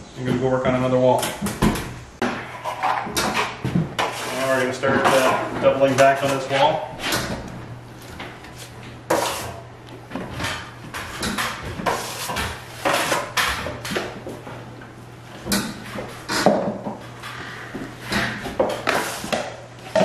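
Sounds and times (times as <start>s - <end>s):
trowel scraping plaster on wall: 2.4s - 5.5s, 9.1s - 9.6s, 11.0s - 13.7s, 18.1s - 19.5s.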